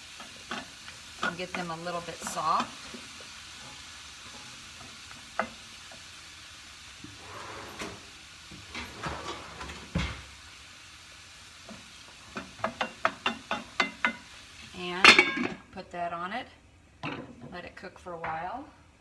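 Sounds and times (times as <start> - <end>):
vegetables sizzling in a frying pan: 0.0 - 19.0
wooden spoon knocking a pan: 11.7 - 14.2.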